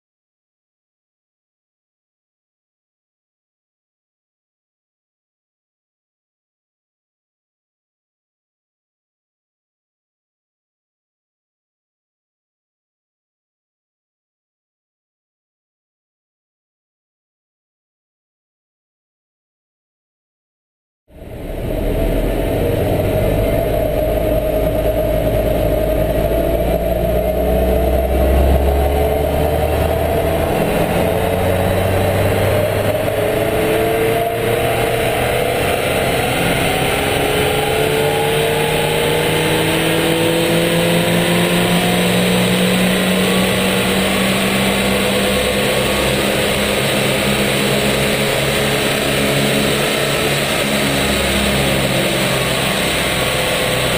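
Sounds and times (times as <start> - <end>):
car engine revving under load: 21.2 - 53.9.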